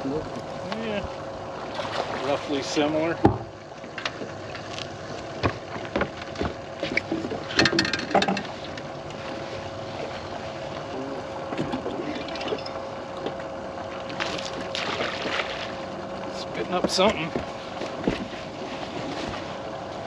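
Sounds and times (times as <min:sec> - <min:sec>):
faint steady hum: 0:00.0 - 0:20.0
water noise: 0:00.0 - 0:20.0
wind: 0:00.0 - 0:20.0
knocks on fiberglass boat: 0:03.2 - 0:03.5.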